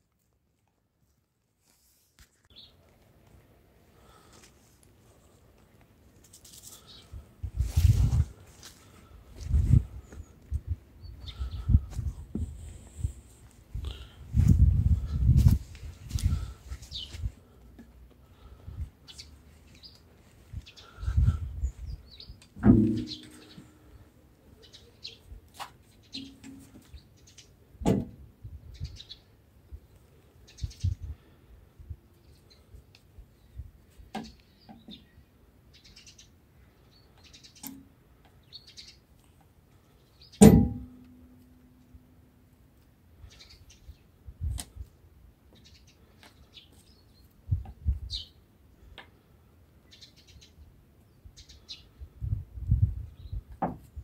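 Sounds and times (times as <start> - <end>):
small birds chirping: 2.5 - 2.9, 6.7 - 7.3, 8.8 - 12.1, 16.2 - 17.7, 18.3 - 27.7, 28.6 - 31.4, 32.2 - 40.4, 43.2 - 44.2, 45.4 - 53.6.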